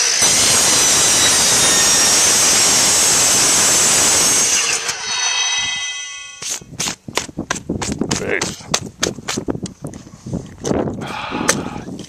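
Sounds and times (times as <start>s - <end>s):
saw blade ringing whine: 0.0s - 6.5s
miter saw cutting metal: 0.0s - 6.6s.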